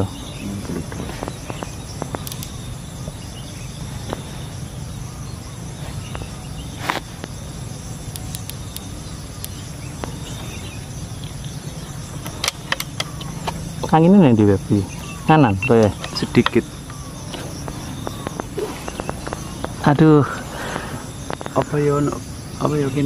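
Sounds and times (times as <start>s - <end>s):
insects chirping: 0.0s - 23.0s
steady low rumble: 0.0s - 23.0s
sharp clicks: 0.9s - 2.6s, 8.1s - 10.2s, 12.2s - 14.0s, 14.9s - 19.9s.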